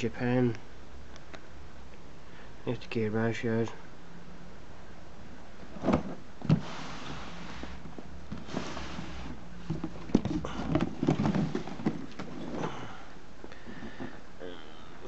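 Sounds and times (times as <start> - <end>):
cardboard box being handled: 7.6 - 12.7.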